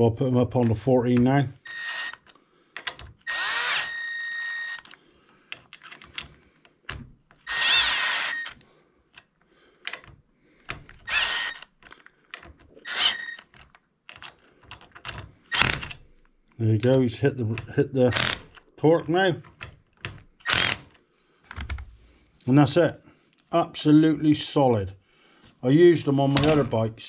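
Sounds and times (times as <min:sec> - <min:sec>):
cordless drill whining: 0:01.6 - 0:02.4, 0:03.2 - 0:05.0, 0:07.0 - 0:08.7, 0:10.7 - 0:11.8, 0:12.8 - 0:13.5, 0:15.4 - 0:16.0, 0:20.4 - 0:20.9.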